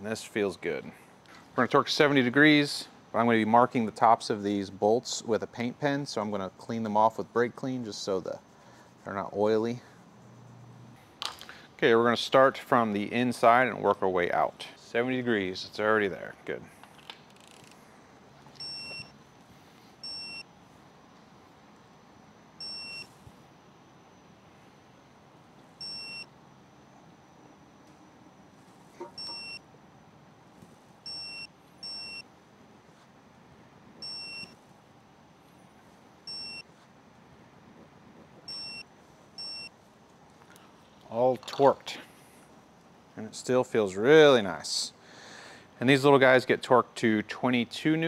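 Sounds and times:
torque wrench short high beeps: 0:29.2 - 0:29.6.

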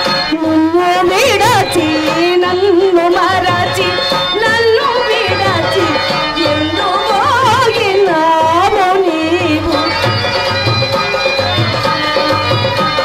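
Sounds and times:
hand drum beat: 0:00.0 - 0:13.0
woman singing ornamented melody: 0:00.3 - 0:10.3.

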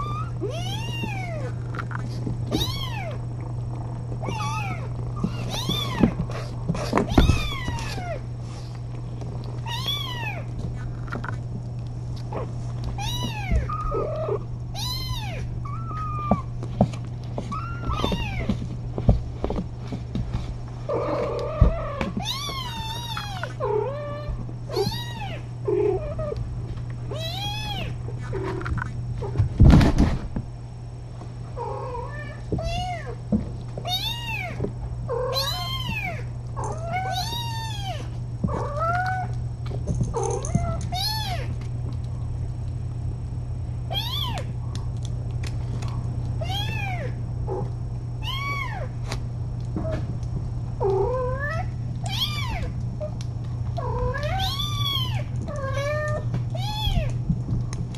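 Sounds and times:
steady low hum: 0:00.0 - 0:57.9
kittens meowing: 0:02.5 - 0:03.3, 0:04.2 - 0:08.3, 0:13.0 - 0:16.5, 0:17.5 - 0:18.6, 0:20.9 - 0:26.4, 0:33.9 - 0:39.4, 0:43.9 - 0:44.5, 0:53.8 - 0:57.2.

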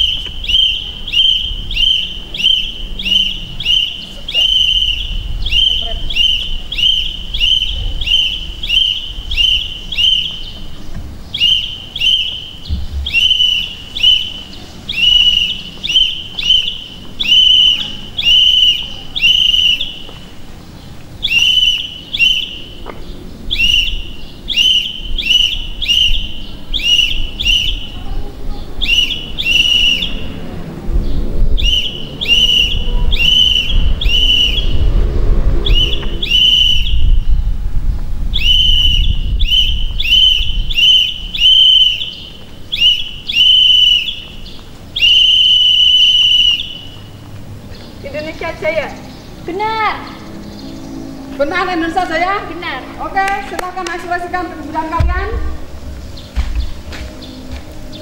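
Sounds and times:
pea whistle trilling blasts: 0:00.0 - 0:10.7, 0:11.3 - 0:20.3, 0:21.2 - 0:28.1, 0:28.8 - 0:30.5, 0:31.5 - 0:37.6, 0:38.3 - 0:47.2.

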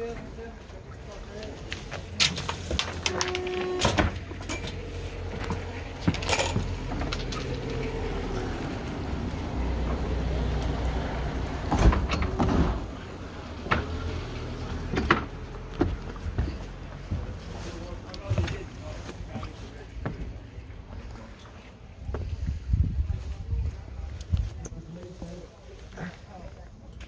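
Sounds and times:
low engine hum: 0:04.0 - 0:26.9
knocks and bumps: 0:11.6 - 0:14.1, 0:14.7 - 0:17.4.

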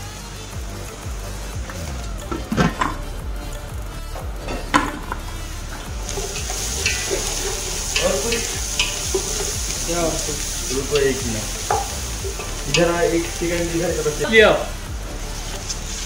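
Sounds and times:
food sizzling in hot oil: 0:03.8 - 0:16.0.

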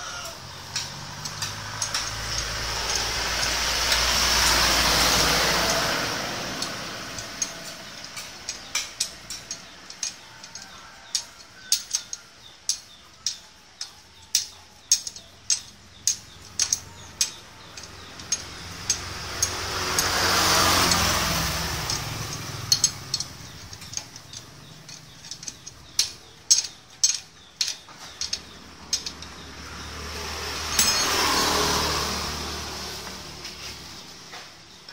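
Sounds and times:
vehicle passing: 0:00.1 - 0:34.9
ratchet wrench clicking: 0:00.5 - 0:31.7.

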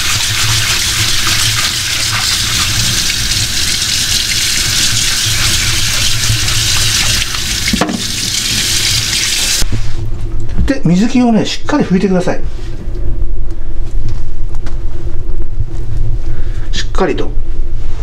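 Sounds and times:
tap water running into sink: 0:00.0 - 0:09.6.

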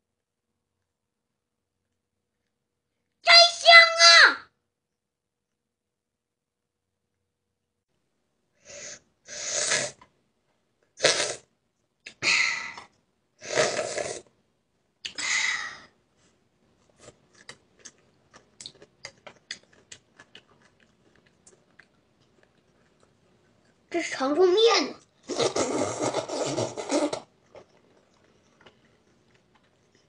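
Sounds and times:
child slurping noodles: 0:08.6 - 0:10.0, 0:11.0 - 0:11.5, 0:12.1 - 0:14.3, 0:25.2 - 0:27.3
chewing mouth clicks: 0:17.0 - 0:23.8.

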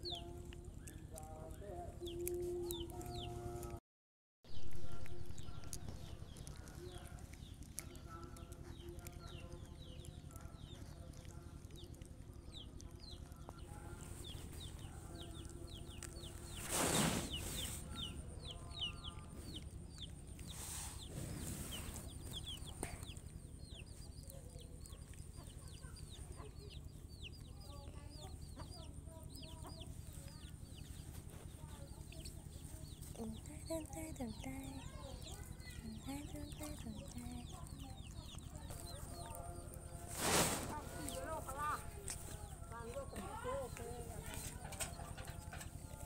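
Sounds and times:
chicks chirping: 0:00.0 - 0:03.8, 0:04.5 - 0:46.0
brief rush of noise: 0:40.1 - 0:40.8.

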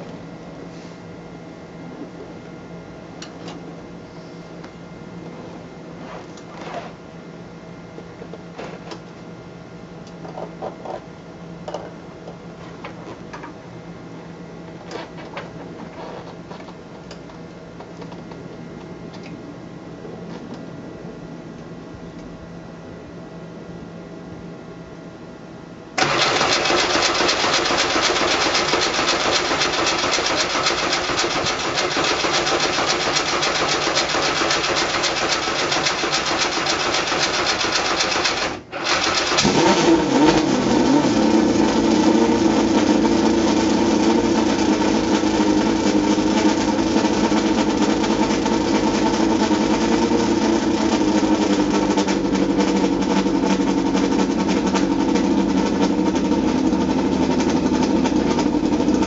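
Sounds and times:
race car engine running rough: 0:26.0 - 0:59.0.

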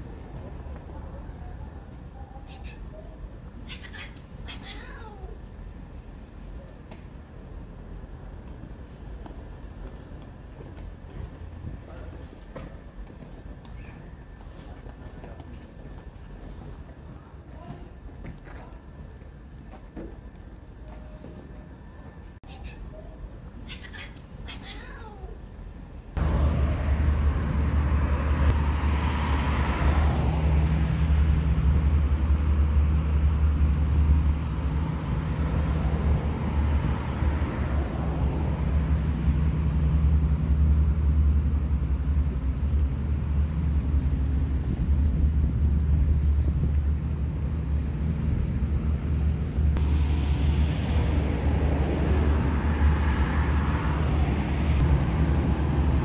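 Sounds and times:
low outdoor rumble: 0:00.0 - 0:56.0
cat yowling: 0:03.6 - 0:05.4, 0:23.6 - 0:25.4
hiss: 0:49.8 - 0:51.7.

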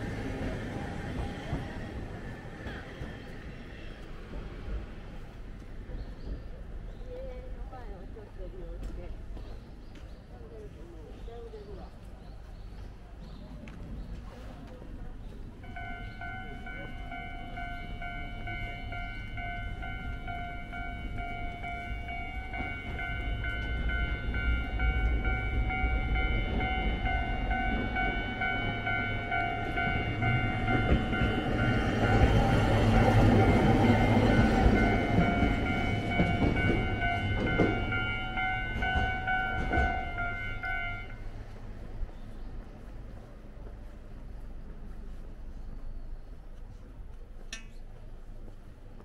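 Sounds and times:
train rumble: 0:00.0 - 0:49.0
crossing warning bell ringing: 0:15.6 - 0:41.6.

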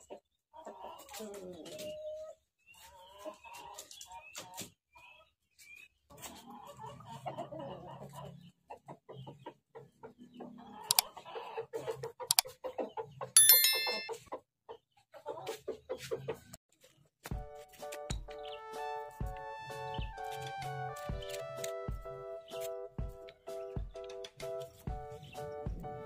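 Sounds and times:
electronic chime: 0:13.4 - 0:14.2.

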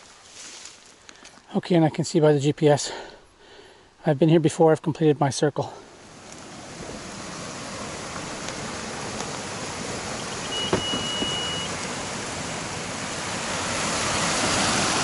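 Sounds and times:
stream rushing over stones: 0:06.0 - 0:15.0
high beep: 0:10.4 - 0:11.8.

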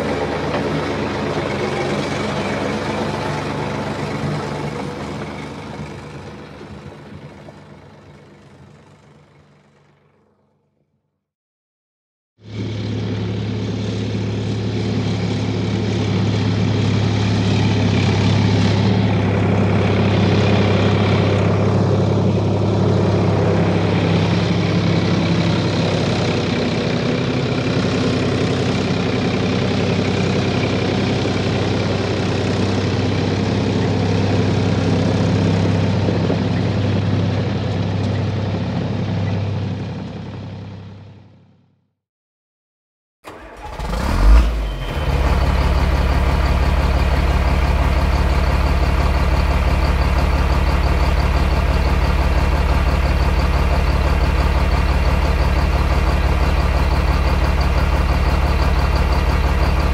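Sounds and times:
heavy engine droning: 0:00.0 - 0:10.9, 0:12.4 - 0:41.9, 0:43.2 - 0:59.9.

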